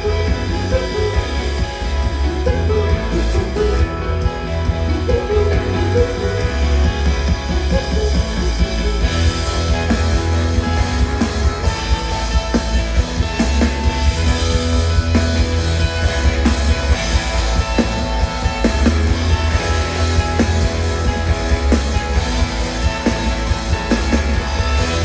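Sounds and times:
drum kit beat: 0:00.0 - 0:25.0
guitar chords: 0:00.0 - 0:25.0
heavy bass line: 0:00.0 - 0:25.0
live rock band playing: 0:00.0 - 0:25.0.

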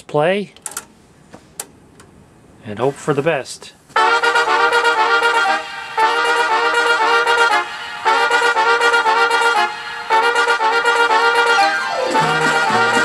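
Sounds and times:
music from cassette deck speakers: 0:11.7 - 0:13.0.

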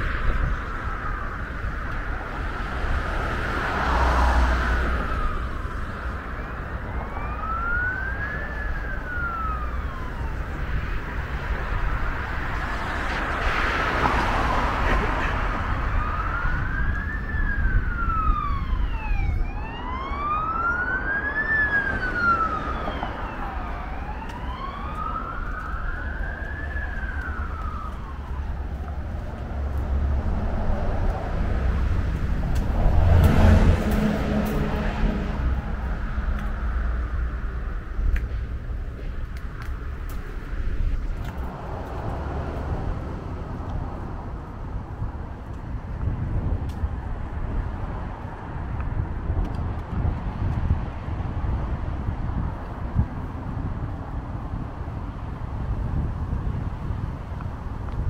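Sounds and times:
emergency vehicle siren wailing: 0:00.0 - 0:46.0
road traffic rumble: 0:00.0 - 0:58.0.

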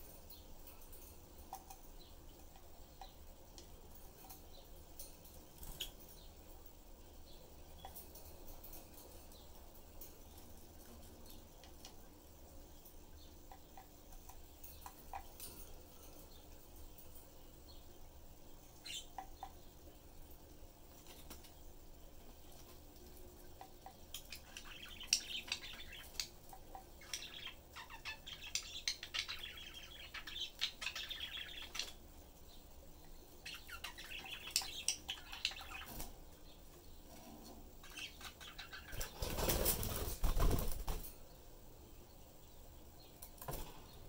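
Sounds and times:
budgerigars chirping: 0:24.3 - 0:26.3, 0:27.0 - 0:32.0, 0:33.4 - 0:36.0, 0:37.8 - 0:39.2
flutter of wings: 0:38.9 - 0:41.2.

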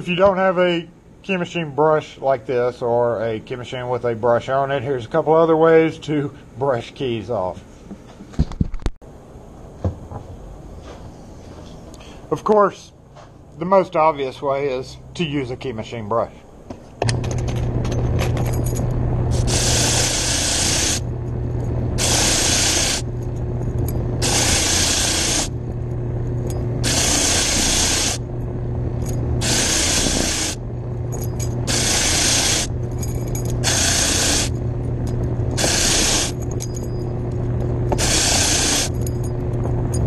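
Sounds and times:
wire brush wheel motor humming: 0:17.1 - 0:40.0.

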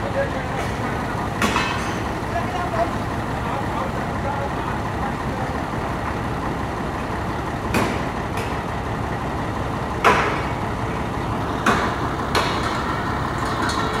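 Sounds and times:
truck engine running: 0:00.0 - 0:14.0
compressor knocking down: 0:07.0 - 0:14.0.

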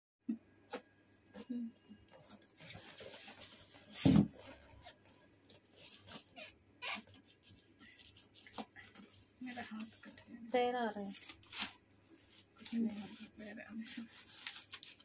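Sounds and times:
tape and box rustling: 0:02.2 - 0:15.0
packing tape being scratched: 0:06.1 - 0:07.3, 0:10.9 - 0:11.8, 0:12.4 - 0:15.0.

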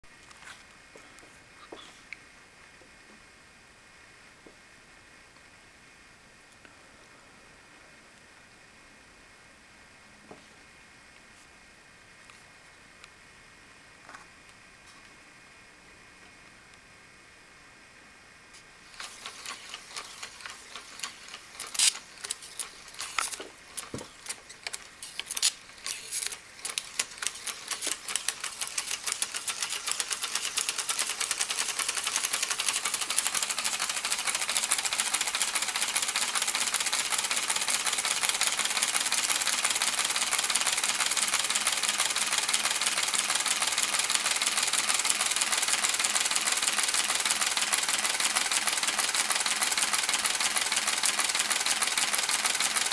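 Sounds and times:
electrical contacts clicking and sparking: 0:18.9 - 0:52.9.

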